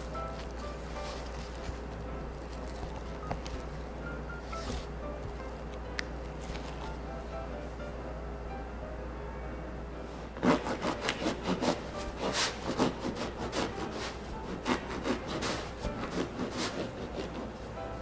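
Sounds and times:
bread knife sawing crust: 10.4 - 17.6.

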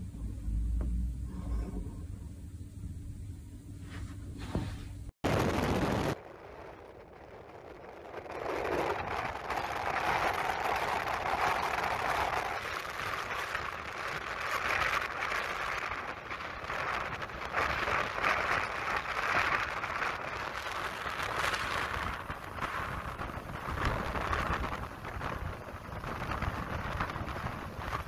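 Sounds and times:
storm wind: 4.4 - 28.0.

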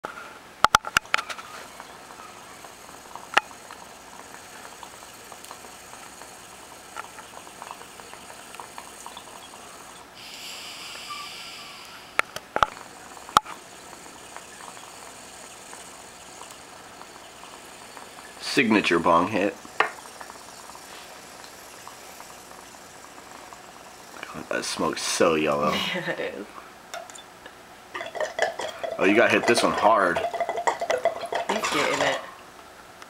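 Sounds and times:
bong water bubbling: 1.0 - 25.7, 28.0 - 32.3
brief hiss: 10.2 - 12.3.

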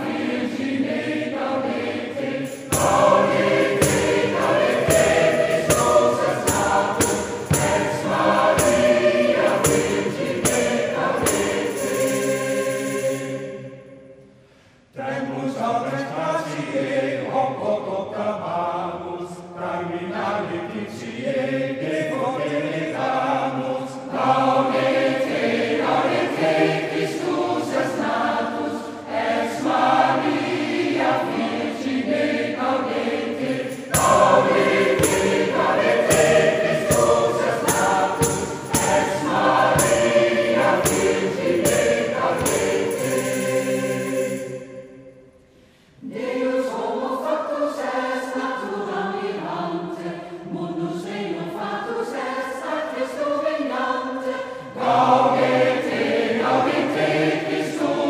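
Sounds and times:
large choir singing: 0.0 - 14.3, 15.0 - 45.4, 46.0 - 58.0
regular beat: 2.4 - 13.2, 33.5 - 44.4.

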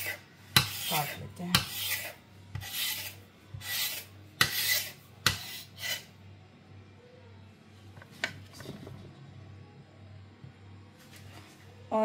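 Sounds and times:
knife scraping dough on stone: 0.0 - 6.2.

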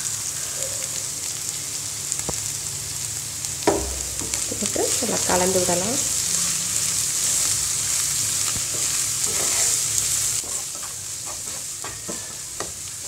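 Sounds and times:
cabbage sizzling in hot oil: 0.0 - 13.0
spatula scraping and tapping pan: 3.7 - 4.8, 8.4 - 12.8.

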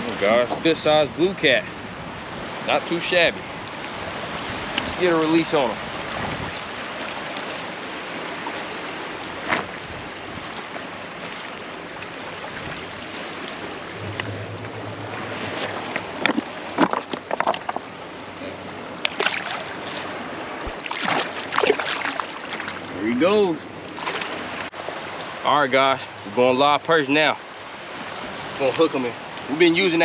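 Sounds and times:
rushing churning water: 0.0 - 30.0
splashes in water: 19.0 - 23.0, 23.9 - 24.6.

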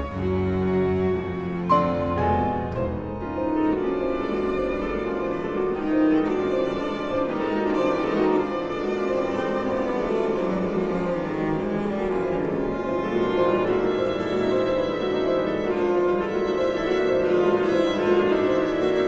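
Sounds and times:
bowed strings: 0.0 - 19.0
grand piano: 0.0 - 19.0.

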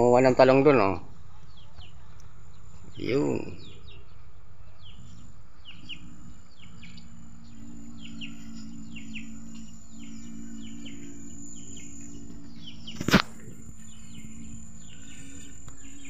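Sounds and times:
high insect whine: 0.0 - 1.3, 2.2 - 16.0
bird chirping: 0.0 - 16.0
faint low hum: 0.0 - 16.0.

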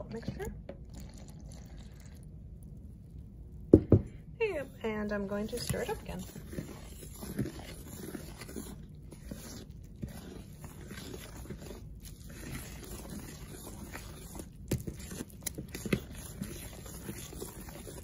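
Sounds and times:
spoon scraping bowl: 4.5 - 18.0.

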